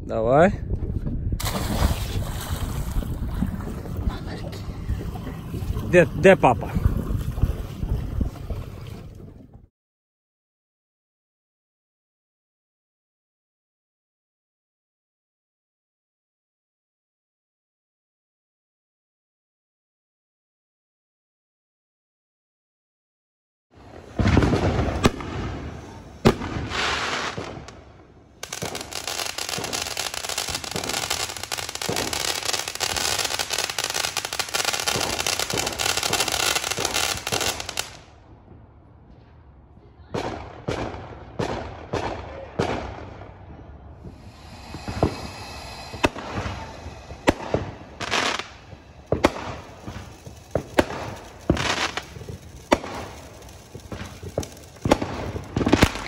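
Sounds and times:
firework hissing rush: 0:23.8 - 0:38.0, 0:44.0 - 0:56.0
firework bangs: 0:23.8 - 0:38.2, 0:40.1 - 0:56.0
firework pops and crackles: 0:24.0 - 0:38.1, 0:44.0 - 0:56.0.

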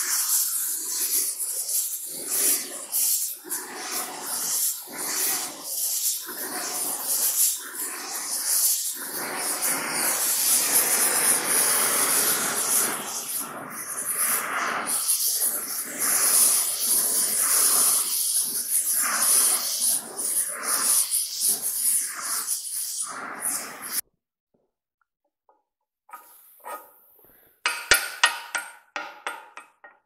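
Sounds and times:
torch flame hissing: 0:00.0 - 0:24.0.

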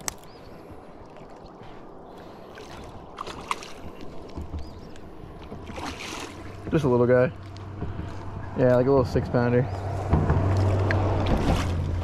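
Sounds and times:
water sloshing: 0:00.0 - 0:08.8, 0:09.7 - 0:12.0
fish splashing at the surface: 0:05.7 - 0:06.6.

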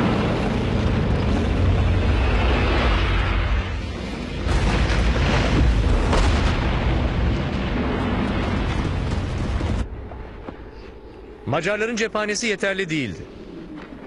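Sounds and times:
explosions: 0:00.0 - 0:10.0
tank rumbling: 0:00.0 - 0:10.5.

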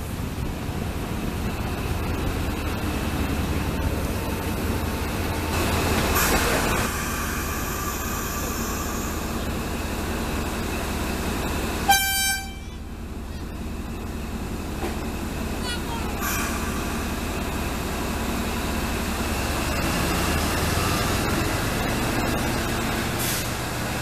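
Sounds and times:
diesel locomotive rumbling: 0:00.0 - 0:24.0
train horn toot: 0:11.8 - 0:12.8.

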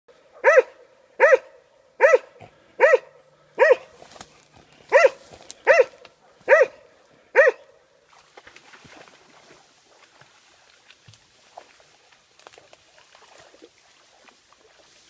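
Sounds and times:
dog barking: 0:00.3 - 0:04.0, 0:04.9 - 0:07.8.

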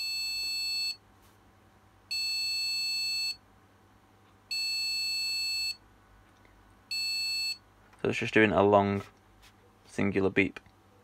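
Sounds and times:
long high-pitched buzzer beeps: 0:00.0 - 0:01.0, 0:02.1 - 0:03.4, 0:04.5 - 0:05.8, 0:06.9 - 0:07.6.

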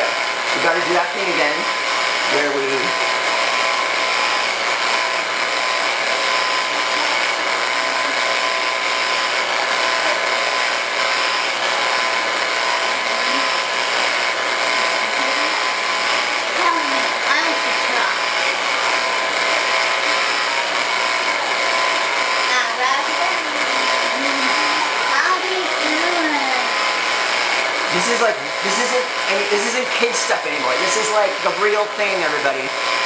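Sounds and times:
appliance motor whining: 0:00.0 - 0:33.0
faint voices: 0:22.4 - 0:26.9.

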